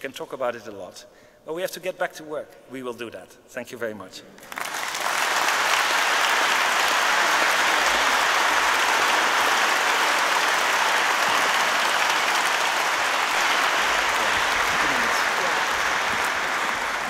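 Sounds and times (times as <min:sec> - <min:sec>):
audience applauding: 0:04.4 - 0:17.0.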